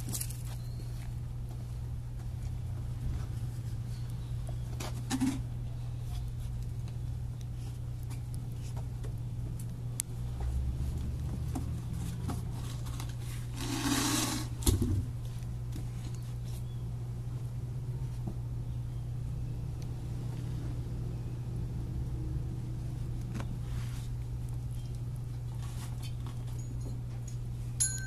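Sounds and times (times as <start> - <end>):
rustling and scraping: 0.0 - 16.8, 23.0 - 27.8
steady low hum: 0.0 - 28.0.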